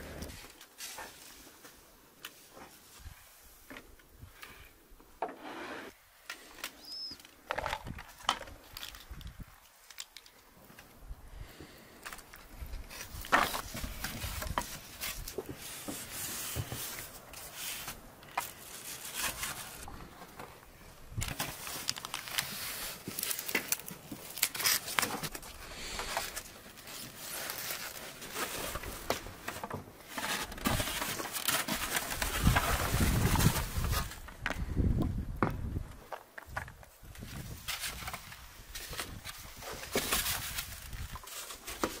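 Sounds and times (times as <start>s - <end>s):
foam box rustling and squeaking: 26.1s - 34.3s.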